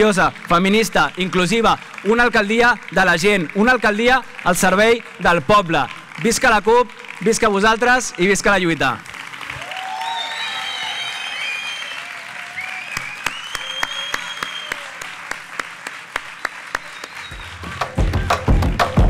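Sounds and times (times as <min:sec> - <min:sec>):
crowd applauding and cheering: 0:00.0 - 0:19.0
music with heavy bass beat: 0:17.6 - 0:19.0.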